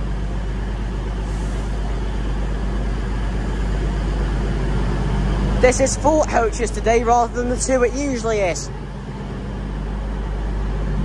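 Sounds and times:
train engines idling: 0.0 - 11.0
hiss of air: 1.2 - 4.0.

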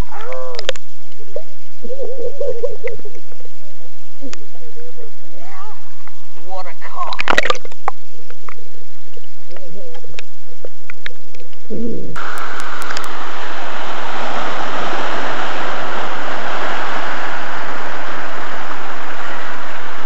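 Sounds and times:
surf breaking on rocky shore: 12.2 - 20.0.

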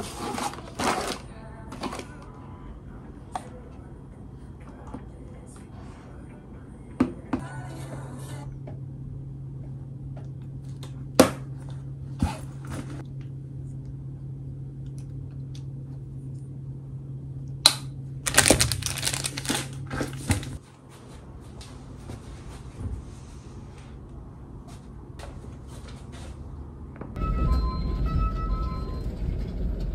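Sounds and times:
steady low hum: 0.0 - 29.9
fabric bag rustling: 18.3 - 20.6.

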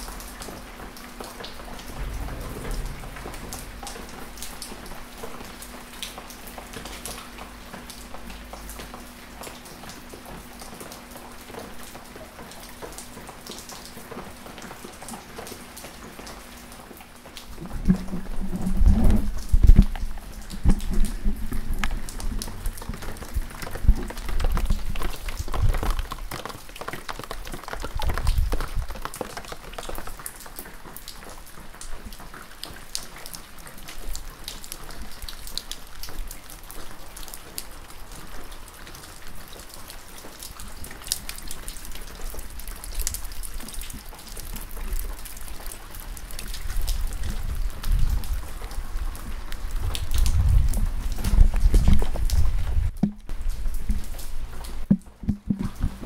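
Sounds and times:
gentle rain falling: 0.0 - 56.0
low rumbling: 1.5 - 6.2.

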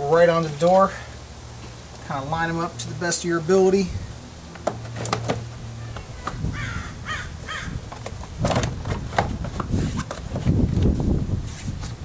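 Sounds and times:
plastic panel knocking and creaking: 7.9 - 10.9.

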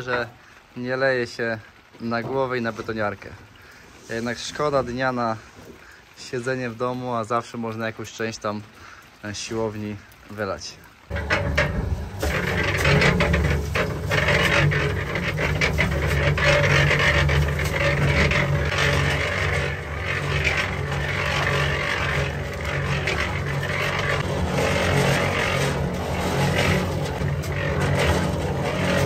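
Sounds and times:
concrete mixer humming: 11.0 - 29.0
drum churning gritty rattle: 11.1 - 29.0.

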